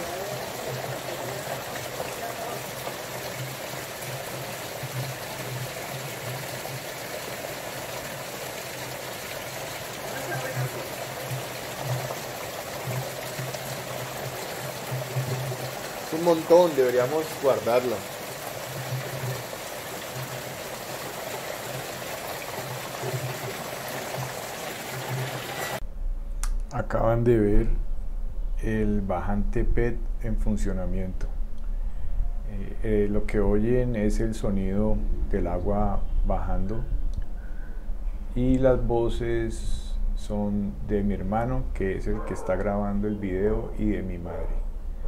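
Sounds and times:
water rushing down pipe: 0:00.0 - 0:25.8
low hum: 0:25.8 - 0:33.0.

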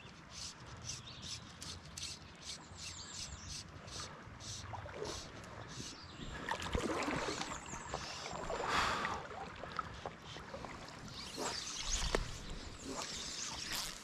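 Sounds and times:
river water splashing: 0:03.9 - 0:14.0.

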